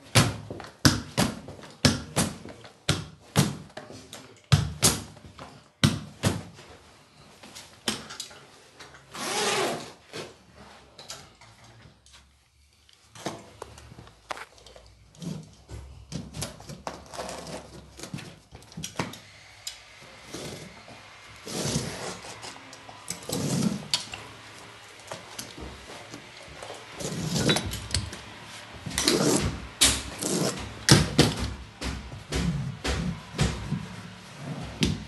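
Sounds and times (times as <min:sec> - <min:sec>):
carpet scraping against strip: 0:23.1 - 0:24.0, 0:28.9 - 0:30.6.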